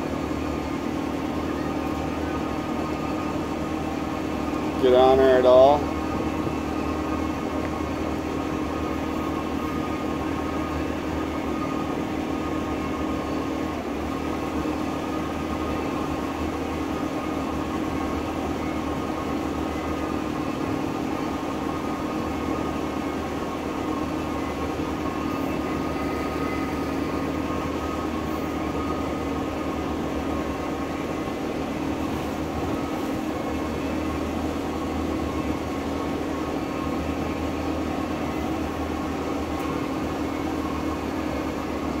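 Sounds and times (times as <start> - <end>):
boat engine idling: 0.0 - 42.0.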